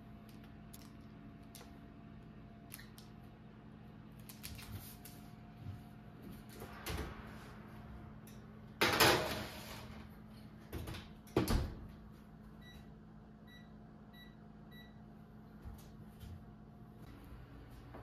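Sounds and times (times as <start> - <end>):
oven control panel beeps: 12.6 - 15.1.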